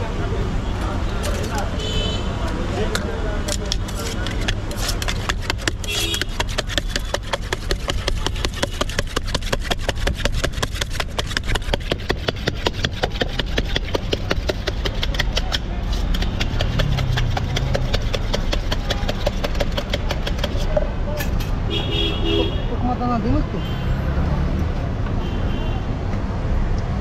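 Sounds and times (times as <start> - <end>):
traffic engine hum: 0.0 - 27.0.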